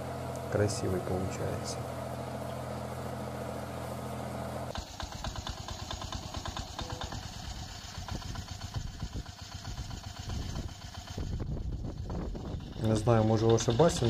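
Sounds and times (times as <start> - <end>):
engine hum: 0.0 - 14.0
small engine with rapid uneven beat: 4.7 - 14.0.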